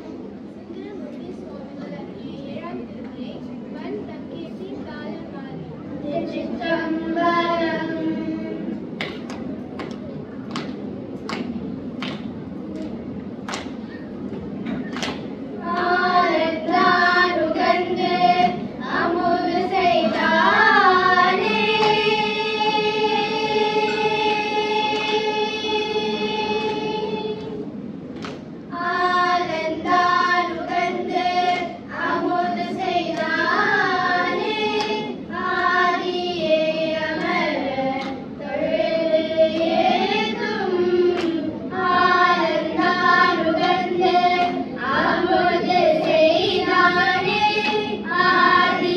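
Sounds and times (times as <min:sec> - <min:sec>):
children singing a hymn: 0:06.1 - 0:08.9, 0:15.6 - 0:27.7, 0:28.7 - 0:48.9.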